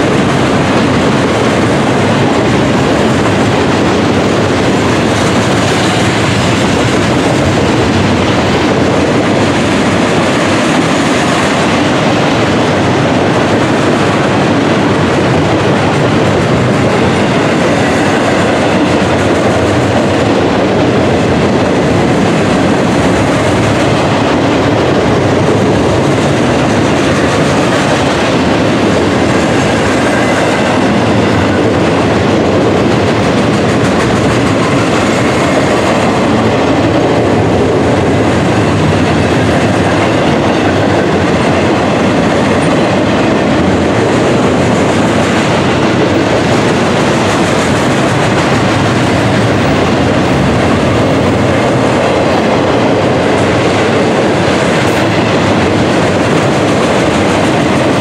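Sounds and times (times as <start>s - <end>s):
steel train wheels on rails: 0.0s - 58.0s.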